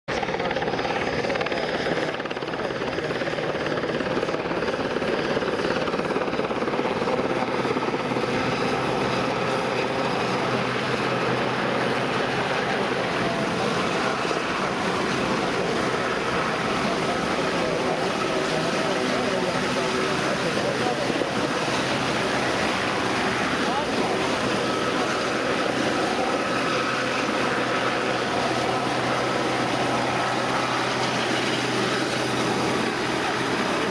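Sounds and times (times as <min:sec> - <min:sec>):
helicopter hovering: 0:00.1 - 0:33.9.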